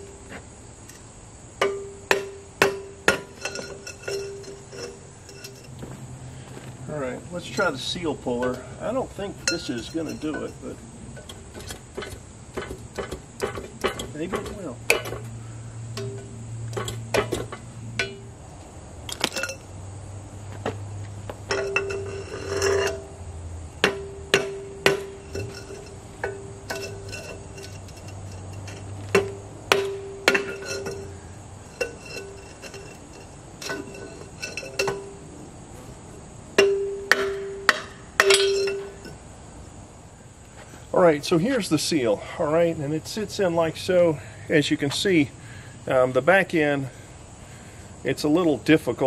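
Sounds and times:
metal-on-metal knocks with ringing: 1.6 - 5.8, 9.4 - 15.3, 15.9 - 18.4, 21.5 - 23.1, 23.8 - 35.2, 36.6 - 39.2.

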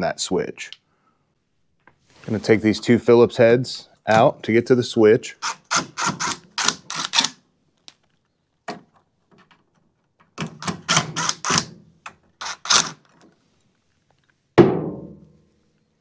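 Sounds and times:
loud thunk with ring: 14.6 - 15.2.

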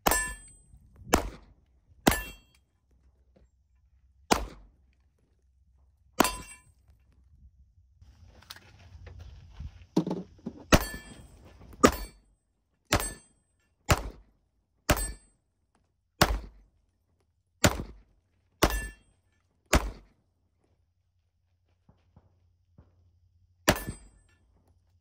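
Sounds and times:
pistol shots: 1.1 - 2.4, 4.3 - 4.8, 13.9 - 14.3, 16.2 - 16.6, 17.6 - 18.0, 19.7 - 20.1.

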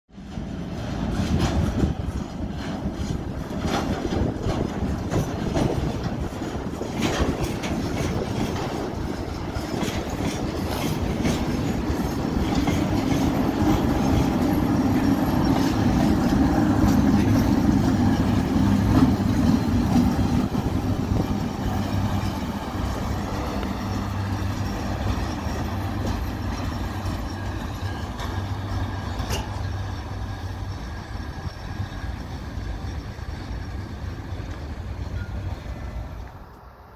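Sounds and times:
locomotive engine hum: 0.1 - 36.9
wheels clicking over rail joints: 0.2 - 36.7.

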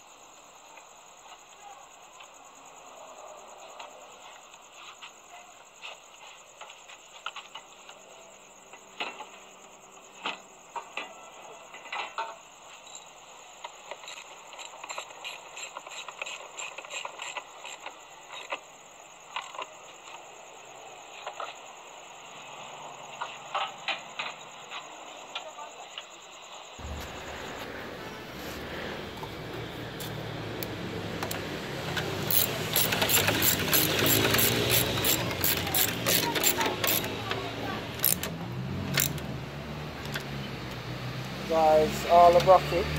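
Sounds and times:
metallic clicks and knocks: 32.0 - 37.4
ratchet clicking: 32.2 - 39.3.

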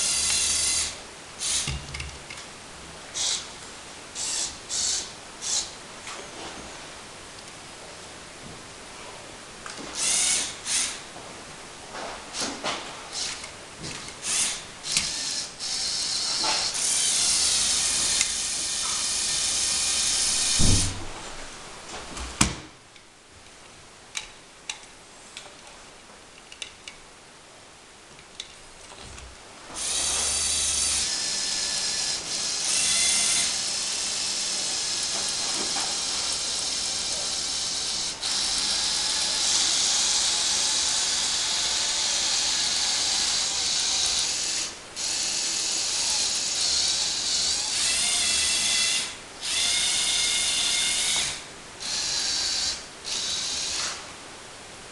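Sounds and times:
electric motors whirring through gears: 0.0 - 2.0, 3.2 - 3.5, 4.2 - 5.8, 9.8 - 11.0, 12.4 - 21.1, 29.8 - 54.1.

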